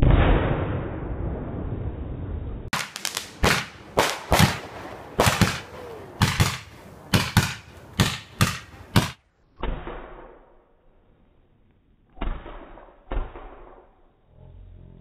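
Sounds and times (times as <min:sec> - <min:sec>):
fireworks bangs with echo: 0:02.7 - 0:10.5.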